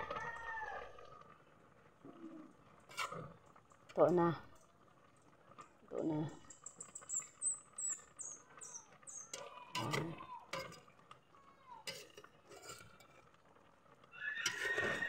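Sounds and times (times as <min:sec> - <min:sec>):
metal ladle scraping pot: 0:02.8 - 0:03.3, 0:09.3 - 0:11.0, 0:11.9 - 0:13.2, 0:14.4 - 0:15.0.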